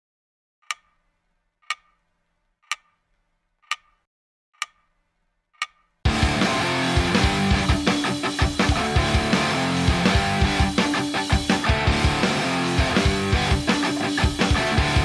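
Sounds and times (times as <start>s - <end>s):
clock ticks: 0.6s - 3.0s, 3.6s - 4.0s, 4.6s - 5.0s, 5.6s - 6.0s
rock music with guitar: 6.1s - 15.0s.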